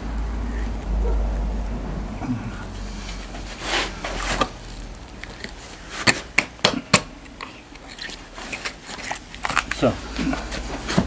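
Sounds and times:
bone cracking: 4.4s - 10.6s.

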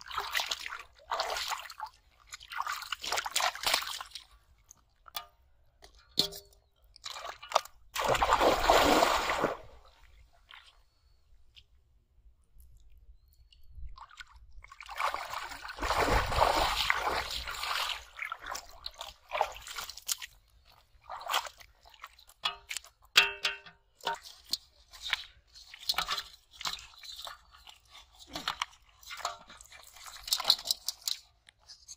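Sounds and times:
water splashing from wading: 0.0s - 4.2s, 7.0s - 10.7s, 14.0s - 20.3s
wet squelches and slaps: 0.0s - 10.8s, 12.6s - 31.9s.

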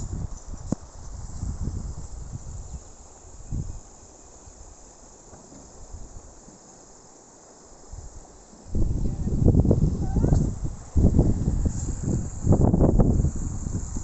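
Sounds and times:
wind buffeting microphone: 0.0s - 3.9s, 7.9s - 14.0s.

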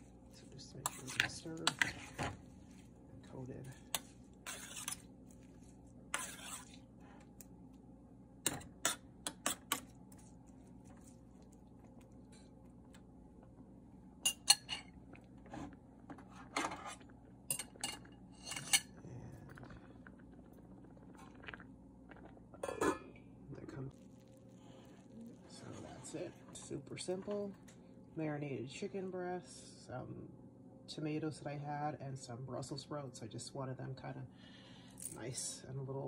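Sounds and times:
metal spoon scraping pot: 0.8s - 2.4s, 3.9s - 5.0s, 6.1s - 6.8s, 8.5s - 9.8s, 16.5s - 18.9s.

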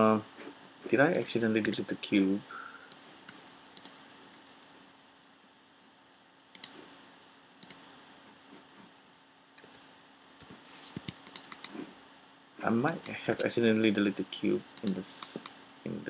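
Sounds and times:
faint steady hum: 0.0s - 16.0s
computer mouse clicking: 1.1s - 1.8s, 2.9s - 4.7s, 6.5s - 6.8s, 7.6s - 7.9s, 9.6s - 11.8s, 12.9s - 13.5s, 14.8s - 15.6s.

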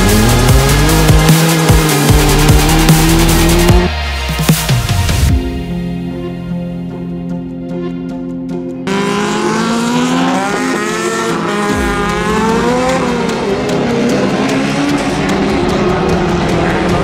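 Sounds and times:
race car engines revving: 0.0s - 3.9s, 8.9s - 17.0s
background music: 0.0s - 17.0s.

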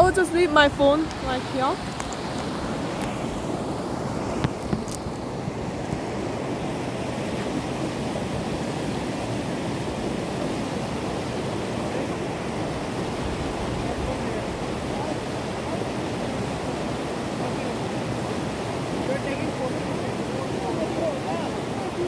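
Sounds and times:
water rushing over rocks: 0.0s - 22.0s.

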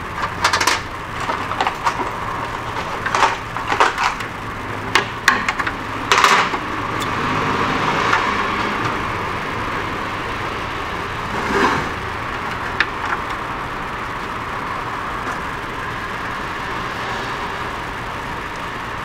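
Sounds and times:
steady background hiss: 0.0s - 19.0s.

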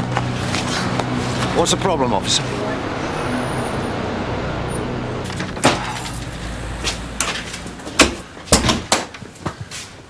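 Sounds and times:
traffic rumble: 0.0s - 10.0s
door opening: 5.2s - 9.3s.

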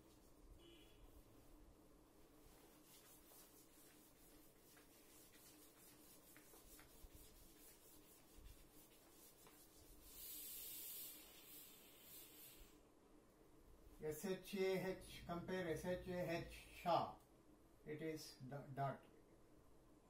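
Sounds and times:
eraser wiping chalkboard: 2.4s - 12.7s.

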